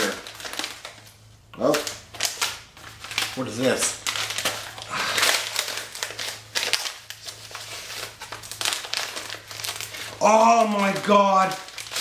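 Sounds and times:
packing material crinkling: 0.0 - 12.0.

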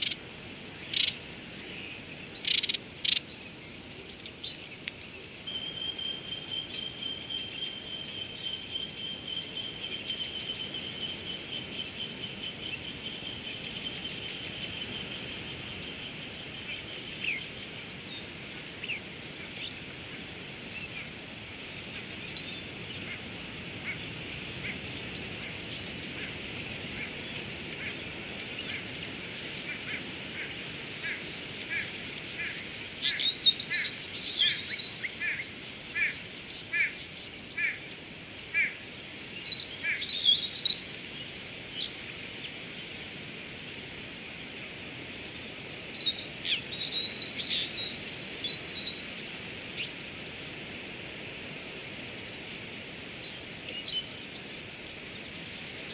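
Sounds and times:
high insect drone: 0.0 - 55.9
thin insect trill: 0.0 - 55.9.

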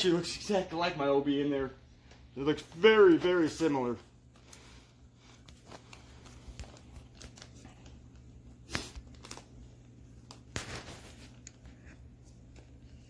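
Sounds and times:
plastic bag crinkling: 3.4 - 11.7.

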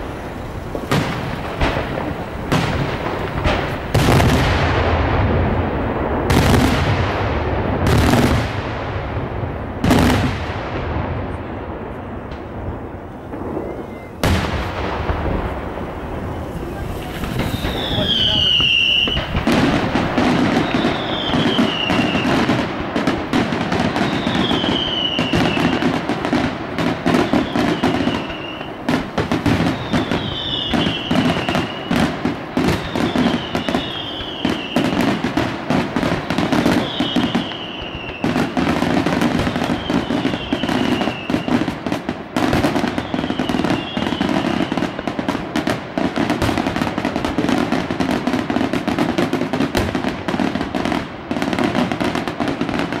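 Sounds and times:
falling firework whistle: 0.0 - 7.2, 11.4 - 45.7
firework bangs: 0.0 - 53.0.

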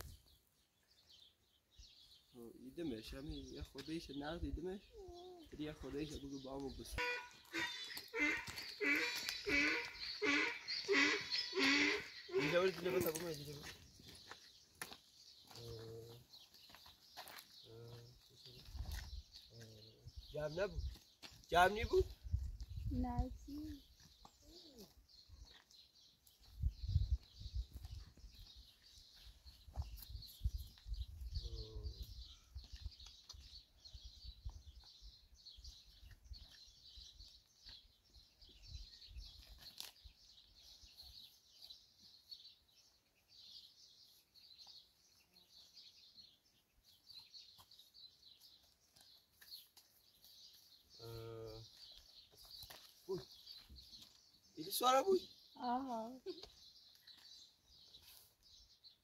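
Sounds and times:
small birds chirping: 0.0 - 59.0
pitched calls: 6.9 - 13.4.

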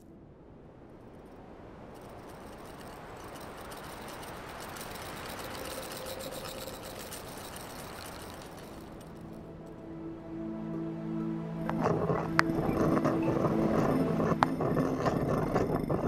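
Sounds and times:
glass ball rolling on stone: 1.9 - 9.4, 11.7 - 16.0.

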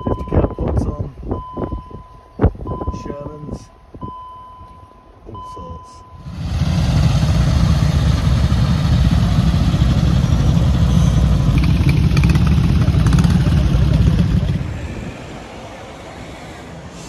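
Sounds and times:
motorcycle engines rumbling: 5.3 - 17.0.

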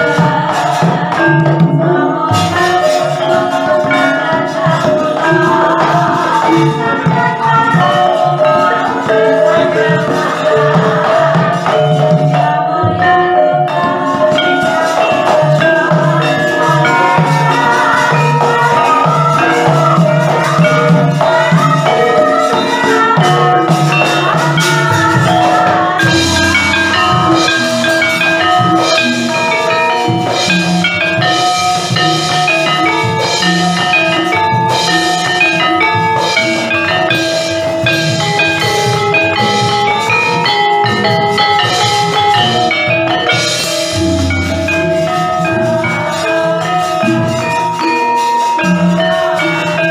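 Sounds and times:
gamelan ensemble playing: 0.0 - 49.9
jingling metal percussion: 0.0 - 49.9.

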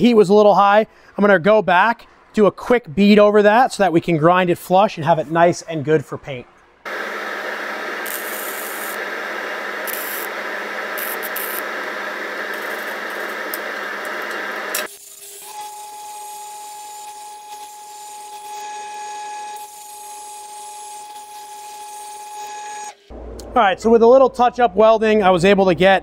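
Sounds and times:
angle grinder whine: 6.9 - 17.6
welding arc: 6.9 - 22.4.

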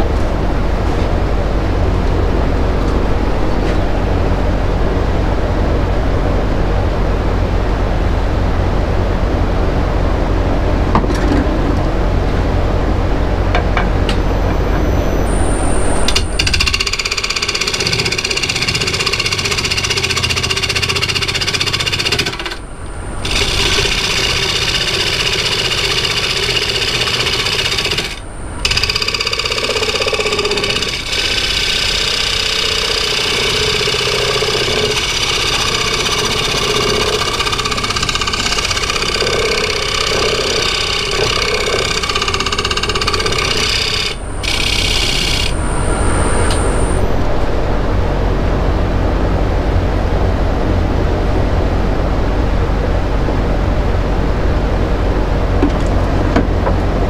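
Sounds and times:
woodturning lathe whirring: 11.8 - 47.6.

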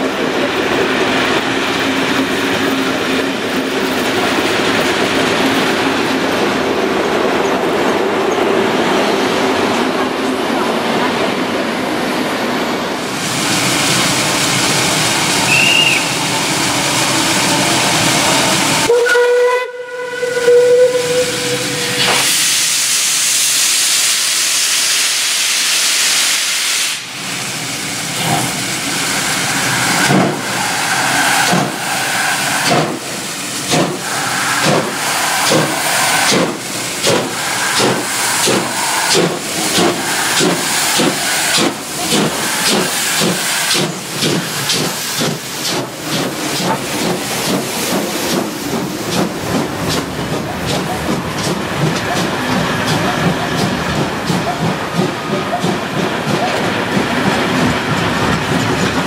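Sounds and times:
train running past: 0.0 - 59.0
steam hissing: 13.0 - 18.9, 20.8 - 59.0
locomotive exhaust beats: 15.4 - 16.2, 30.0 - 59.0
steam locomotive whistle: 15.4 - 16.2, 18.8 - 25.5.

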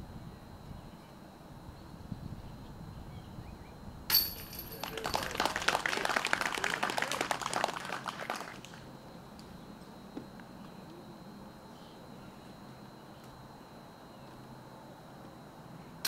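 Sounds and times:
disc striking metal chains: 4.1 - 5.2
people clapping: 4.6 - 8.9.

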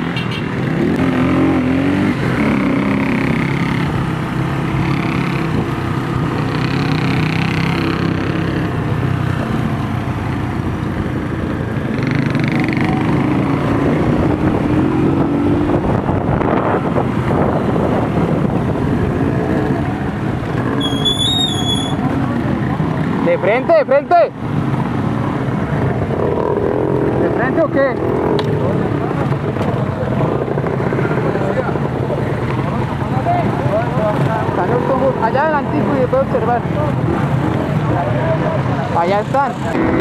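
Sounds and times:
motorcycle engines running: 0.0 - 40.0.

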